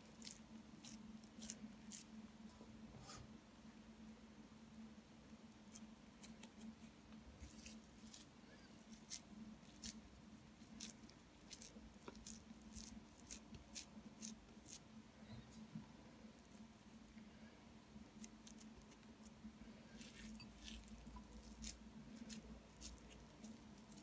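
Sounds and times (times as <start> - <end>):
low steady hum: 0.0 - 24.0
wet squishes of minced meat: 6.2 - 14.8.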